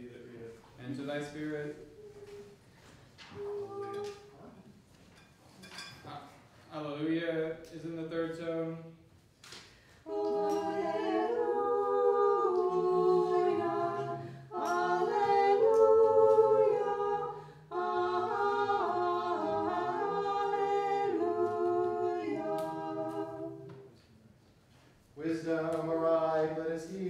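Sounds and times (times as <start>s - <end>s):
voices chanting in harmony: 10.0s - 24.0s, 25.2s - 27.0s.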